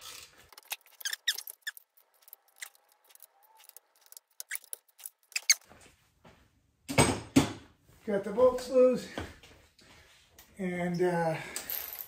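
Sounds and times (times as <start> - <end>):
ratchet squeaks and clicks: 0.0 - 5.6.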